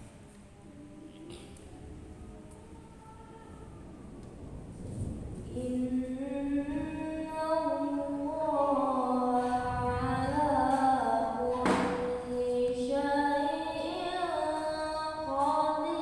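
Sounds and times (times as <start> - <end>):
girl chanting into a microphone: 5.5 - 16.0.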